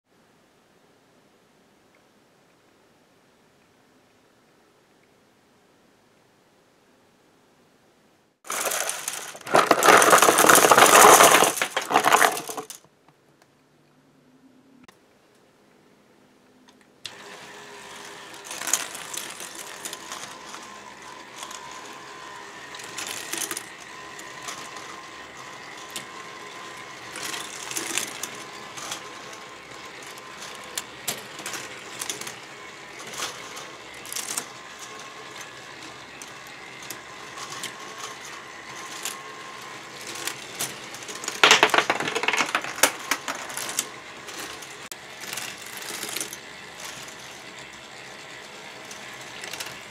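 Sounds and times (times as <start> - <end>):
plastic parts clicking and clattering: 8.5 - 12.9, 18.4 - 21.8, 22.7 - 25.0, 27.0 - 47.6, 48.8 - 49.9.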